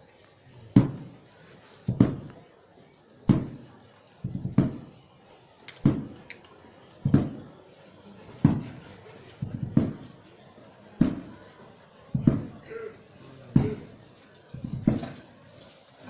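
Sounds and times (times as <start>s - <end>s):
slow procession drum beat: 1.9s - 2.3s, 3.3s - 3.6s, 4.2s - 4.9s, 7.0s - 7.5s, 9.4s - 10.2s, 12.1s - 12.9s, 13.5s - 14.0s, 14.6s - 15.2s.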